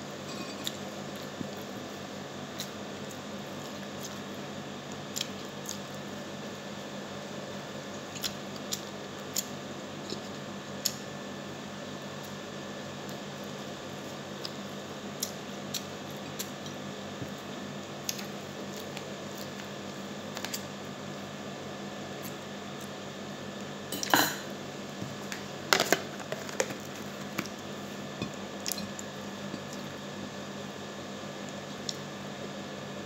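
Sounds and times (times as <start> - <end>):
steady background hum: 0.0 - 33.0.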